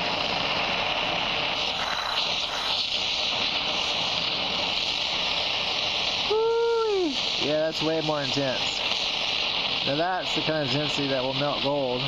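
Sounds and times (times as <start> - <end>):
cutting torch flame hissing: 0.0 - 12.0.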